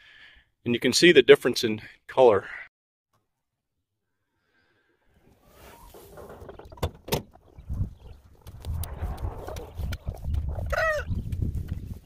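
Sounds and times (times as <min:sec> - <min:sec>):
chicken calling: 0:10.7 - 0:11.2.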